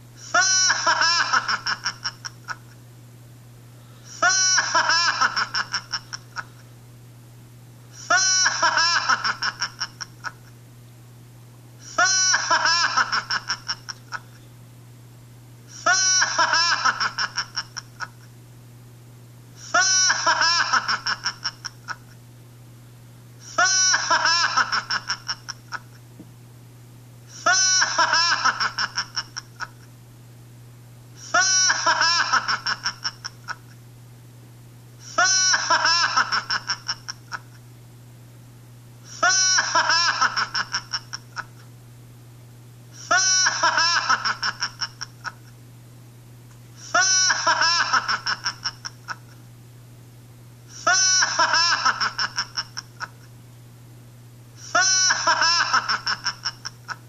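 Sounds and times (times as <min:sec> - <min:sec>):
steady low hum: 0:00.0 - 0:57.0
high-pitched childlike cackling laugh: 0:00.2 - 0:02.8, 0:04.1 - 0:06.6, 0:08.0 - 0:10.5, 0:11.8 - 0:14.4, 0:15.8 - 0:18.3, 0:19.6 - 0:22.2, 0:23.4 - 0:26.0, 0:27.4 - 0:29.9, 0:31.2 - 0:33.8, 0:35.0 - 0:37.6, 0:39.1 - 0:41.7, 0:43.0 - 0:45.6, 0:46.8 - 0:49.4, 0:50.7 - 0:53.3, 0:54.6 - 0:57.0.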